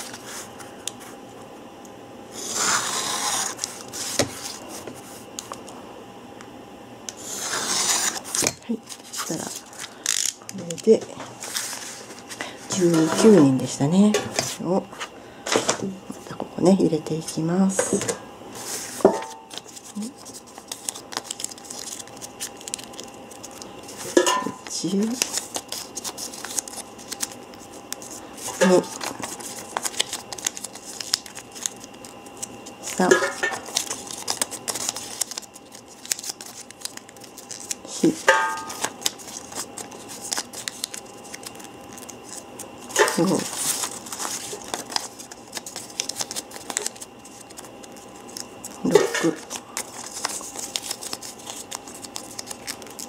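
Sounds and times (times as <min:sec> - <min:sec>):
knife cutting paper along ruler: 0:02.4 - 0:04.2, 0:07.2 - 0:08.2
paper rustling and crinkling: 0:02.5 - 0:05.6, 0:07.4 - 0:13.4, 0:18.6 - 0:53.0.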